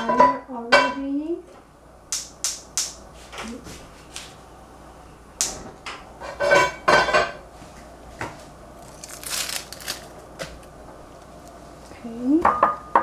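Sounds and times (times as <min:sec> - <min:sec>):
metal pots and utensils clattering: 0:00.0 - 0:01.1, 0:06.2 - 0:07.4.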